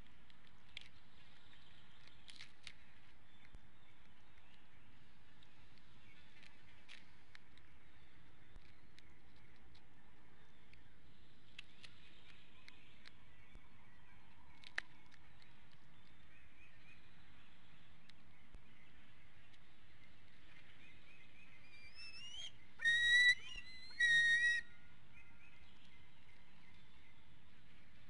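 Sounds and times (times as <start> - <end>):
eagle whistled squeals: 21.7 - 24.8.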